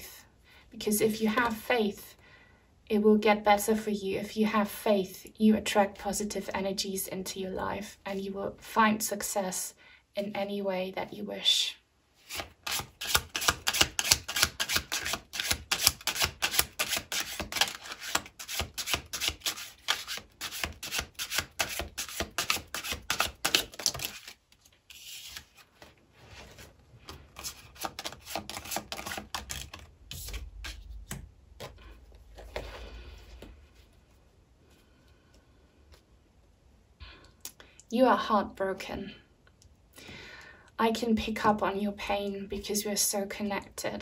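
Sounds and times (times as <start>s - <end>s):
cards being shuffled: 12.2s - 34.0s.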